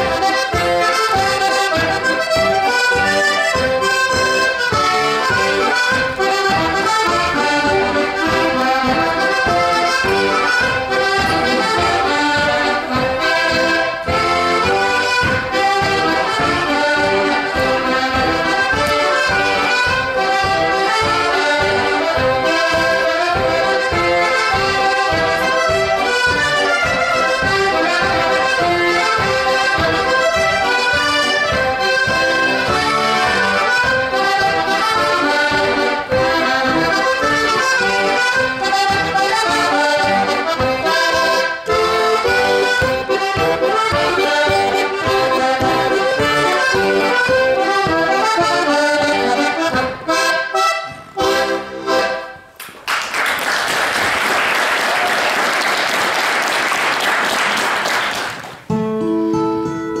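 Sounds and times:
accordion playing quick tune: 0.0s - 52.6s
audience applause: 52.6s - 58.7s
acoustic guitar: 58.6s - 60.0s.

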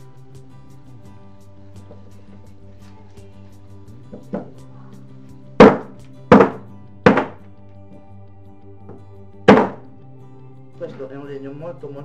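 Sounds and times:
background music: 0.0s - 12.0s
sharp wooden knocks: 5.6s - 7.4s, 9.5s - 9.8s.

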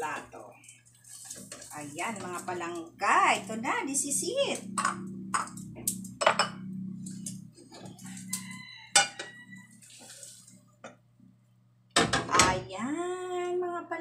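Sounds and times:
frying pan clinking on plate: 8.9s - 9.4s.

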